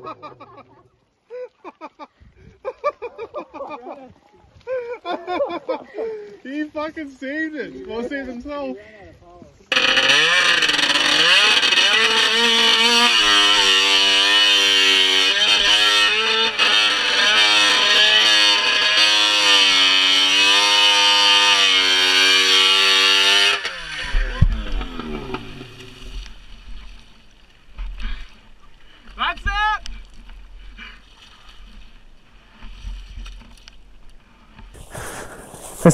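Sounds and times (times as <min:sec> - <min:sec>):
snowmobile engine revving: 0:09.7 - 0:26.2, 0:34.8 - 0:35.9.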